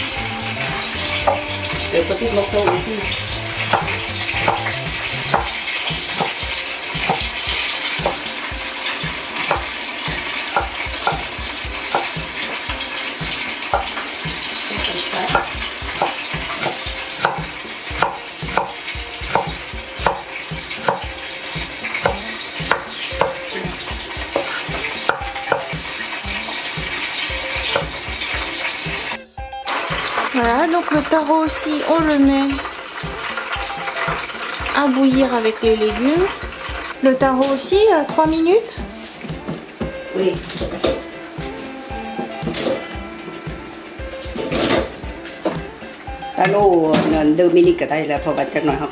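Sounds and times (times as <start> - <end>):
knife knocking on wooden board: 10.6 - 11.3.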